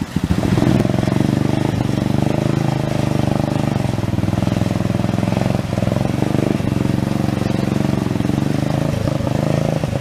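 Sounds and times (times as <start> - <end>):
rushing creek water: 0.0 - 10.0.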